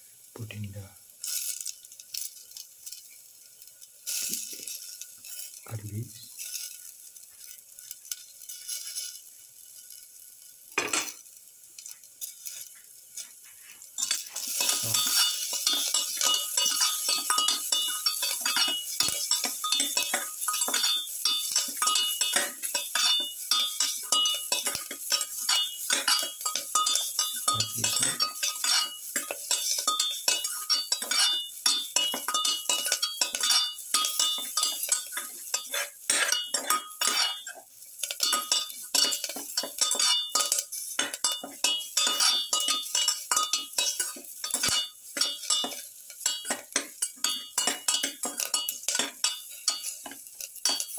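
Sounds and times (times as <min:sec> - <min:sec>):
metal spatula scraping metal pan: 0:12.4 - 0:50.9.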